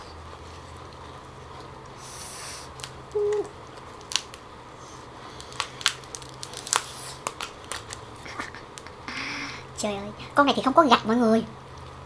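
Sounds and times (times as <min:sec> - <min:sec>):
lobster shell cracking: 0:02.7 - 0:04.5, 0:05.3 - 0:08.0
person humming: 0:03.1 - 0:03.6.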